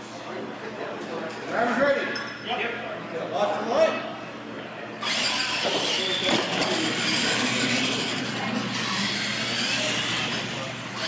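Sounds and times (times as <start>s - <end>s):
rc truck motors running: 5.0s - 11.0s
tyres on concrete floor: 5.0s - 11.0s.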